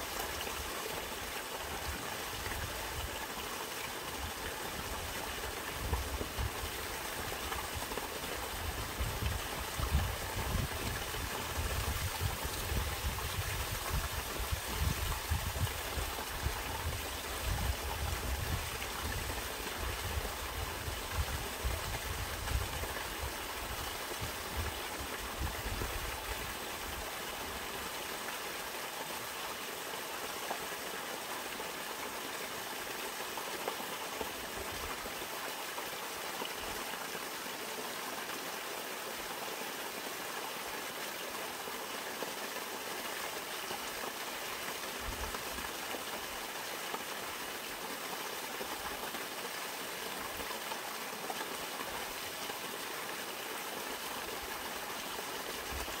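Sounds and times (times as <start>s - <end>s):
stream water splashing over rocks: 0.0s - 56.0s.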